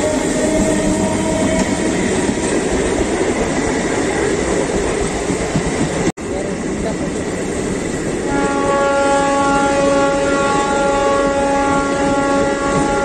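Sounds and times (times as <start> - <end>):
train horn blast: 0.0 - 2.8, 8.3 - 13.0
train wheels rumbling on rails: 0.0 - 13.0.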